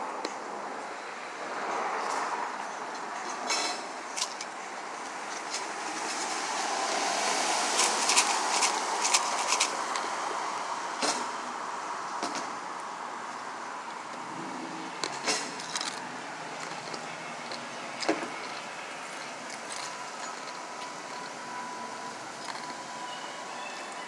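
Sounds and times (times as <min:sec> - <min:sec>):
car passing close by: 0:05.6 - 0:11.4.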